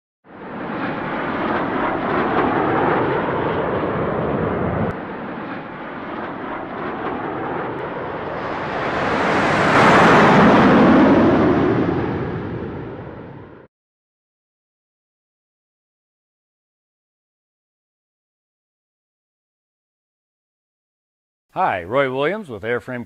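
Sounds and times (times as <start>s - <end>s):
airplane flyby: 0.3s - 13.7s.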